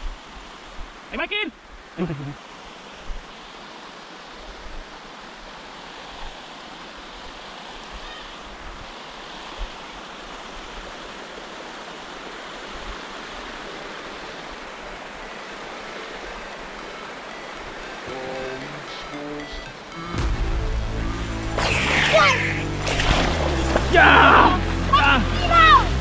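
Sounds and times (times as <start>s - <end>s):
river water rushing: 0.0s - 26.0s
low bumps: 19.6s - 26.0s.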